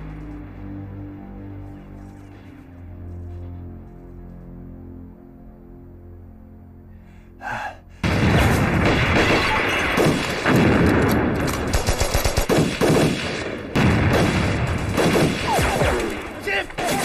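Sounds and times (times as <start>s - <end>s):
quiet tense music: 0.0s - 17.0s
explosions: 8.0s - 11.7s, 12.5s - 16.3s
machine-gun and rifle fire: 8.1s - 16.2s.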